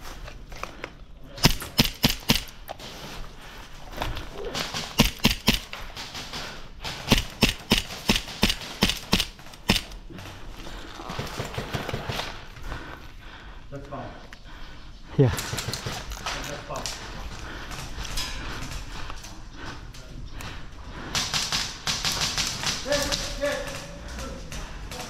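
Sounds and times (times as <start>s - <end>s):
airsoft gun shots: 6.8s - 9.9s.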